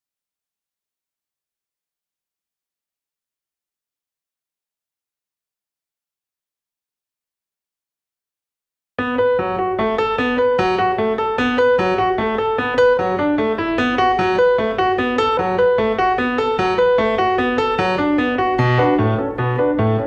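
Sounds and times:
piano playing repeating pattern: 9.0 - 20.0.

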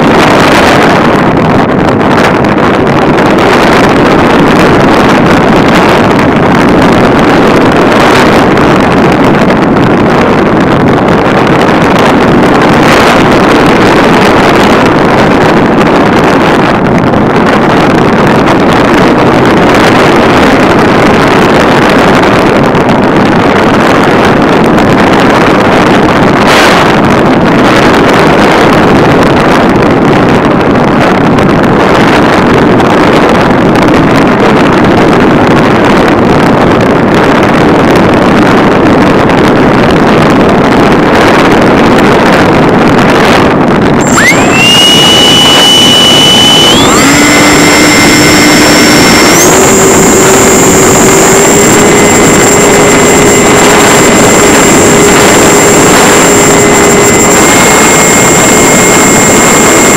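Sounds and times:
air rushing over microphone: 0.0 - 59.9
electric model plane motor: 44.0 - 59.9.

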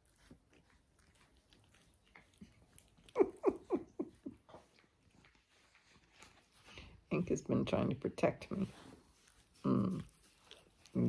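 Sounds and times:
dog licking and nibbling: 0.0 - 7.0, 8.0 - 11.0
woman laughing: 3.1 - 4.6.

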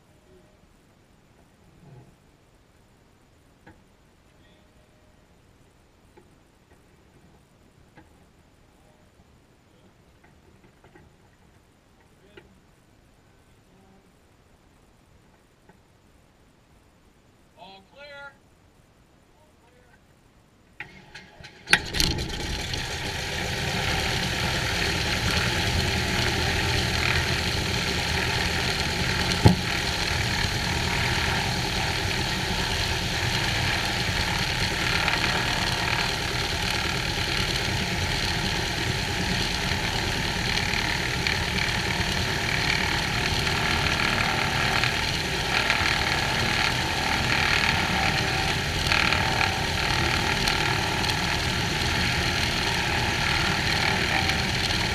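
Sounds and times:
aircraft engine cranking: 20.8 - 54.9
aircraft engine idling: 21.5 - 54.9.

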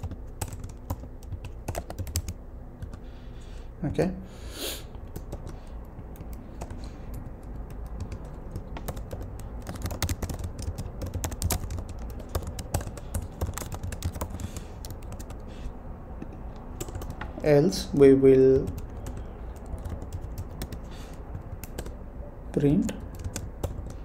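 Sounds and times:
typing on computer keyboard: 0.0 - 3.0, 5.0 - 15.5, 16.2 - 17.4, 18.4 - 24.0.

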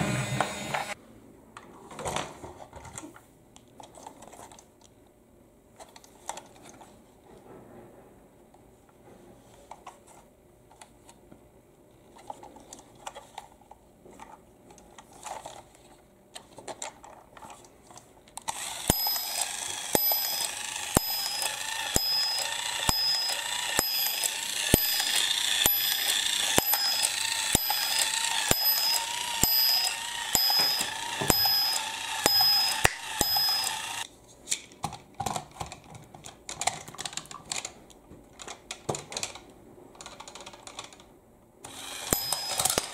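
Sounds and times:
plastic toy handling clicks: 16.3 - 42.9
toy mechanism clicking: 18.3 - 34.1, 41.6 - 42.9
electronic chime tune: 18.9 - 34.0, 42.2 - 42.9.

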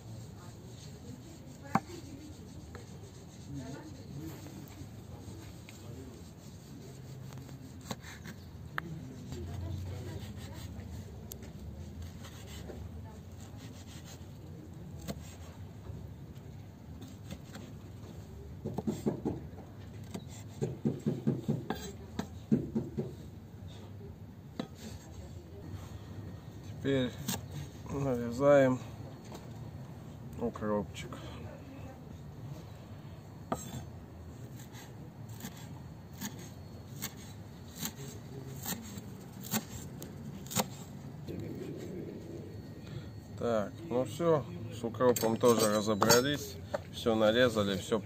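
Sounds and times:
knife chopping on wooden board: 18.6 - 19.4, 38.6 - 39.8, 40.4 - 40.8.

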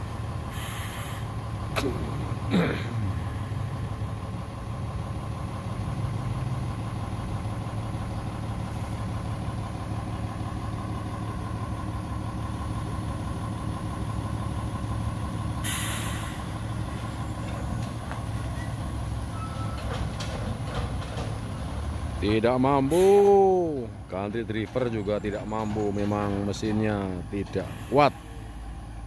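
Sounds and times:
heavy diesel engine running: 0.0 - 29.0
air hiss: 0.5 - 1.3, 15.6 - 16.5.

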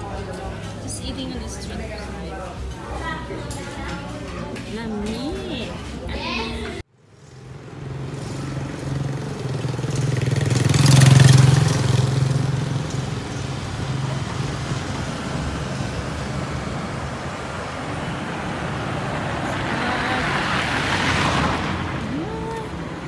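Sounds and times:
traffic engine hum and road noise: 0.0 - 23.0.

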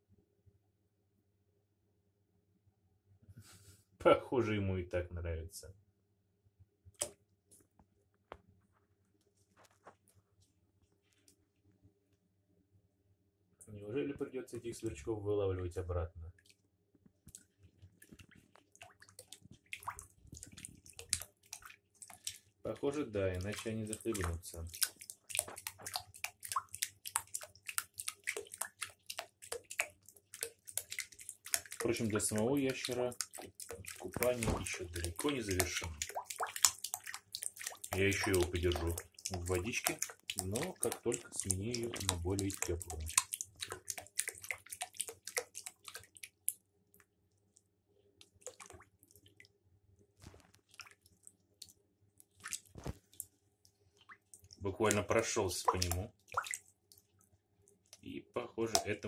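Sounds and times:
water dripping: 16.4 - 49.6, 50.2 - 59.0
bathwater splashing: 17.3 - 46.6, 48.2 - 49.5, 50.2 - 57.2, 58.7 - 59.0.

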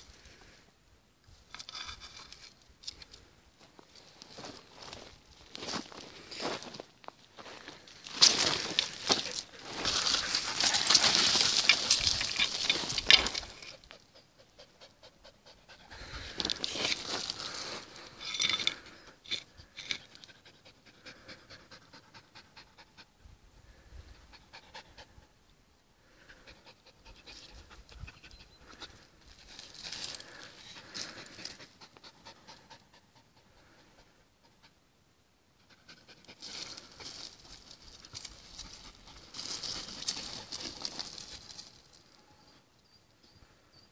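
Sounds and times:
dog panting: 13.7 - 16.4.

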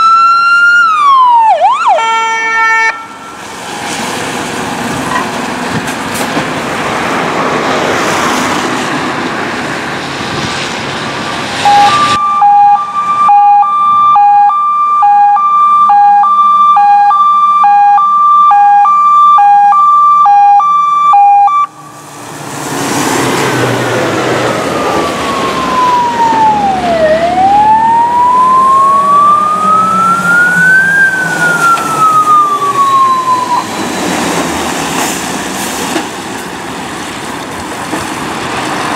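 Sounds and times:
two-tone hi-lo siren: 0.0 - 3.5, 11.6 - 21.9, 24.5 - 33.9
slow wail siren: 0.0 - 3.8, 11.6 - 22.2, 23.8 - 34.0
truck engines and tyres rushing: 0.0 - 38.9
diesel truck engine: 2.9 - 38.9.

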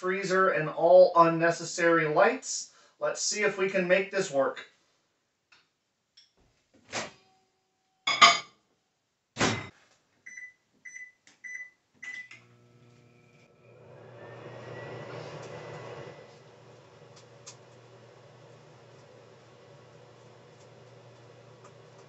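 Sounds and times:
microwave humming: 11.4 - 22.0
whirring fan: 12.4 - 22.0.

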